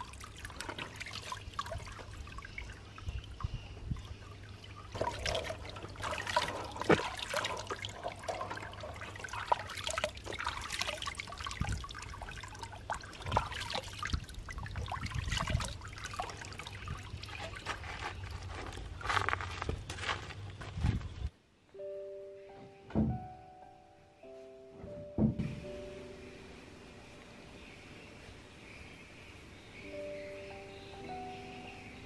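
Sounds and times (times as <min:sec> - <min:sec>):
small water splashes: 0:00.0 - 0:18.2
water dripping and trickling: 0:00.0 - 0:19.4.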